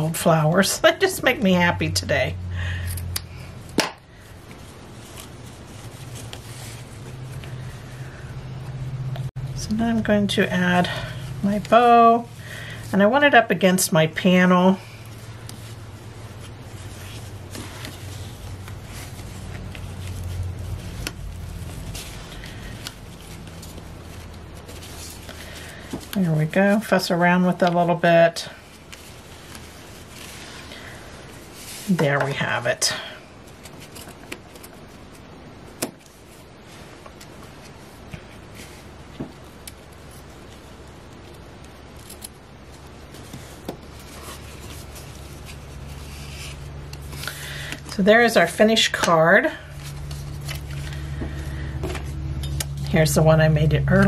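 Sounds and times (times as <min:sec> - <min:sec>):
low background hum: 0:00.0 - 0:54.0
ribbon and card rustling: 0:00.0 - 0:54.0.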